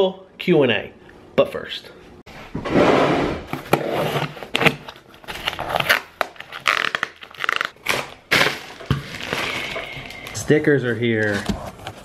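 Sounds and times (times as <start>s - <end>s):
cardboard crunching and tearing: 3.7s - 10.2s
packing tape ripping: 3.9s - 10.3s.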